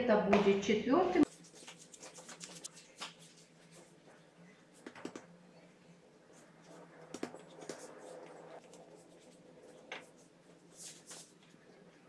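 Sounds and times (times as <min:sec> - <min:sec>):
brush scraping dough: 0:01.2 - 0:04.2.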